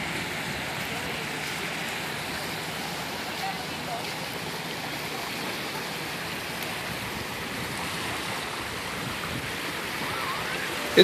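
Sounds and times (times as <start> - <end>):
small waves washing onto sand: 0.0 - 11.0.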